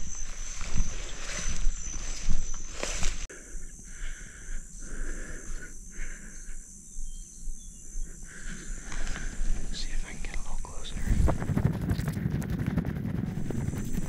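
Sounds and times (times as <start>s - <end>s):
rustling through grass: 0.0s - 3.3s
insects trilling in pulses: 0.0s - 12.2s
high-pitched insect whine: 0.0s - 14.0s.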